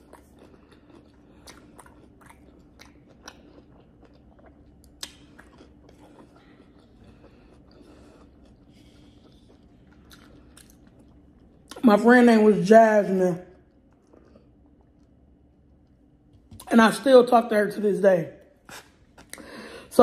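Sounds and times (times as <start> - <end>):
person chewing food: 0.0 - 11.9, 13.4 - 16.7, 18.6 - 19.7.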